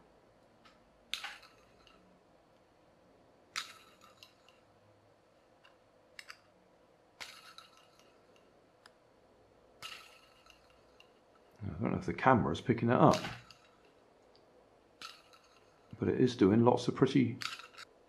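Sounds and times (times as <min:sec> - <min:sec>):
fidget spinner clinks: 0:01.1 - 0:02.0, 0:03.6 - 0:04.7, 0:07.2 - 0:08.5, 0:09.8 - 0:11.6, 0:13.0 - 0:14.0, 0:15.0 - 0:16.0, 0:17.4 - 0:18.0.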